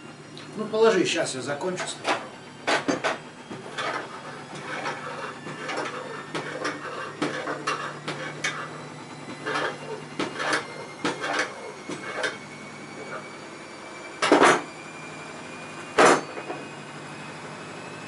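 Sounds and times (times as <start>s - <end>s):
metal tools scraping and clinking: 2.9s - 8.8s, 9.4s - 12.4s.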